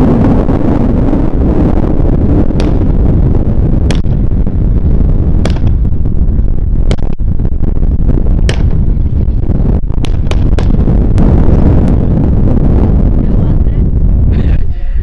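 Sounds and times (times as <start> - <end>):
wind rumbling on microphone: 0.0 - 15.0
sharp distant cracks: 2.4 - 4.3, 5.4 - 6.0, 6.8 - 7.2, 8.4 - 9.0, 9.9 - 11.3.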